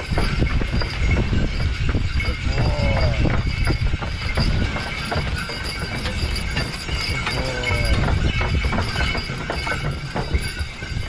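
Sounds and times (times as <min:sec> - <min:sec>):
hooves clopping in snow: 0:00.0 - 0:11.0
low rumble of moving sleigh: 0:00.0 - 0:11.0
sleigh bells jingling: 0:00.0 - 0:11.0.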